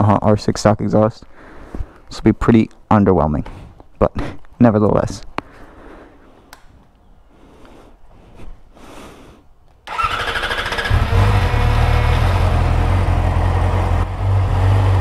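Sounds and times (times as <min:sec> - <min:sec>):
electric starter whirring: 0:09.9 - 0:12.6
motorcycle engine idling: 0:09.9 - 0:15.0.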